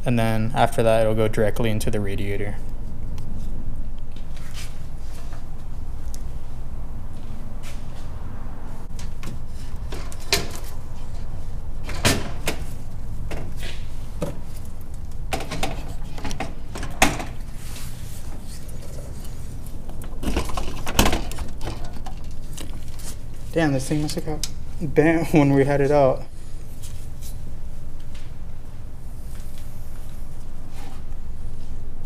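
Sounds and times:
steady low hum: 0:00.0 - 0:32.0
radiator knocks and clunks: 0:08.9 - 0:17.6, 0:18.2 - 0:23.5.

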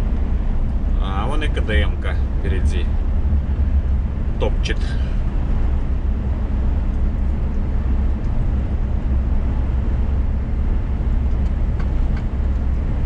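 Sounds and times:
truck engine and tyre drone: 0:00.0 - 0:13.0.

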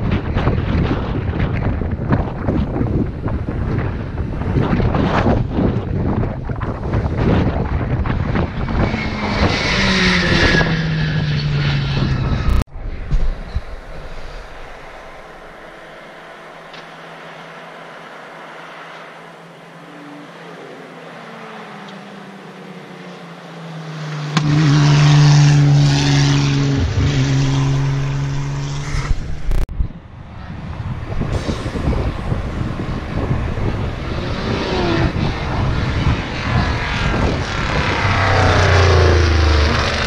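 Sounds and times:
race car engine revving: 0:18.7 - 0:29.7, 0:32.2 - 0:40.0.

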